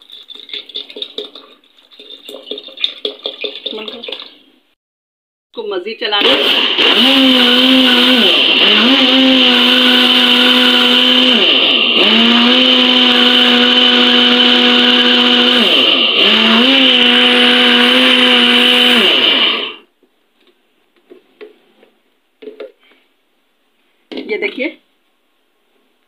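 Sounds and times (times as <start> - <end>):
blender motor whining: 6.2 - 19.8.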